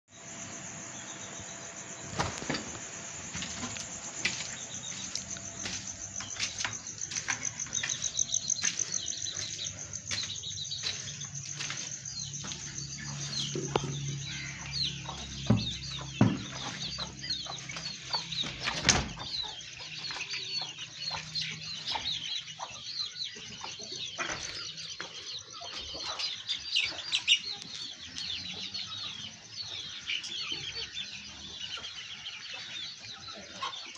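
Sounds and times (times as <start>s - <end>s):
chickens chirping: 1.1s - 33.9s
scattered knocks: 13.4s - 19.5s.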